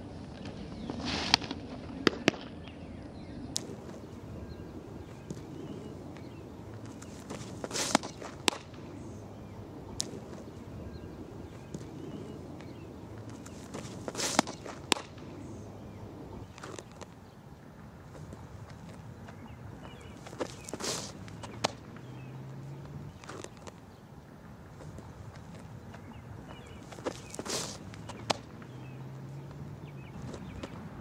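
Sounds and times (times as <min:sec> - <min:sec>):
ball popping into leather mitt: 0:05.1 - 0:08.9, 0:09.9 - 0:10.5, 0:11.5 - 0:15.3, 0:16.4 - 0:17.2, 0:18.1 - 0:22.2, 0:22.8 - 0:23.8, 0:24.8 - 0:28.8.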